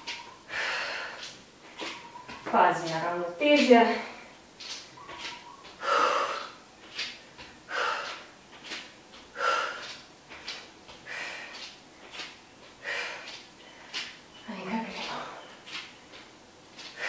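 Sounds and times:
woman breathing hard: 0.4s - 1.9s, 5.7s - 8.3s, 9.3s - 10.0s, 10.9s - 14.2s, 16.8s - 17.0s.

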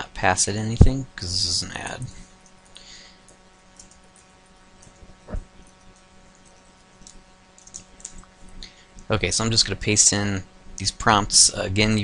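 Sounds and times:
low electrical hum: 0.0s - 12.0s
keyboard typing: 3.7s - 8.3s.

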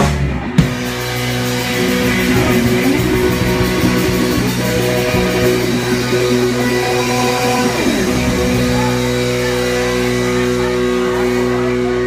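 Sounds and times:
live band playing: 0.0s - 12.0s.

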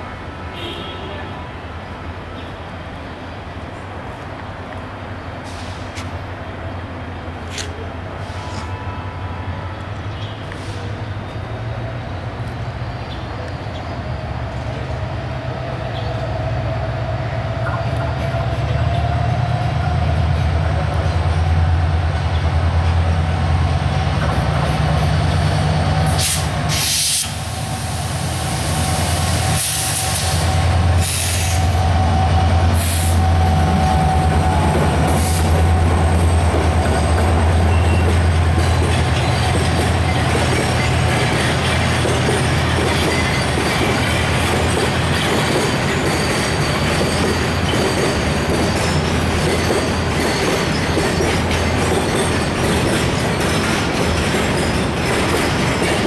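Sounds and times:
diesel locomotive engine drone: 1.3s - 56.0s
wheels squealing: 29.5s - 56.0s.

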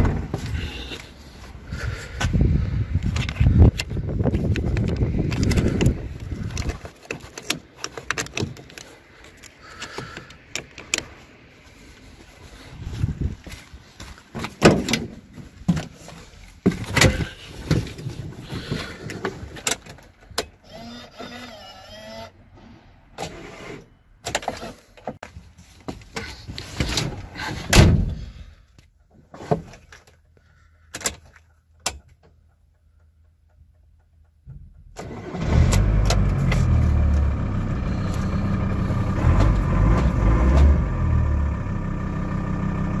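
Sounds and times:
wavering squeak: 20.7s - 22.4s
diesel engine starting and idling: 34.8s - 43.0s.

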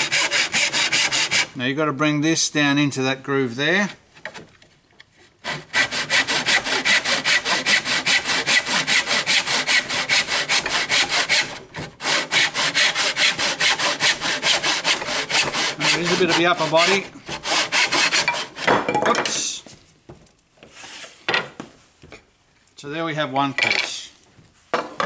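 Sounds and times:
hand saw cutting timber: 0.0s - 1.6s, 5.4s - 18.8s.

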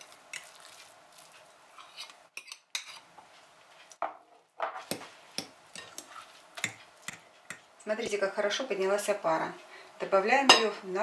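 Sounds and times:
fork scraping glass bowl: 1.7s - 3.0s.

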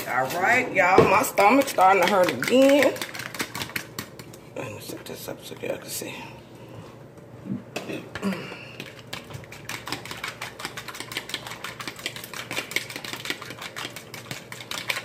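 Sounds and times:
fork beating eggs in bowl: 1.3s - 6.0s, 7.9s - 15.0s.

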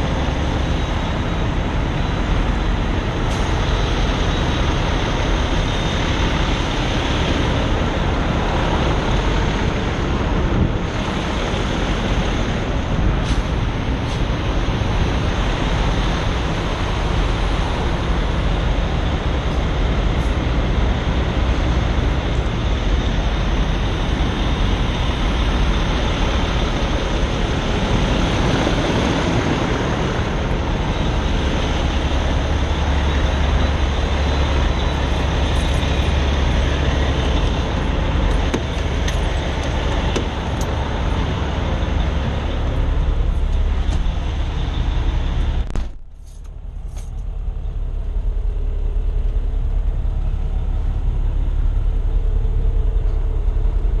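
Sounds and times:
truck traffic rumble: 0.0s - 54.0s.

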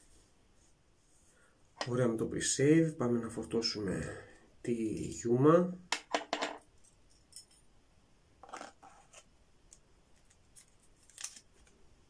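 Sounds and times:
razor clicks and hand rustles: 9.7s - 11.8s.

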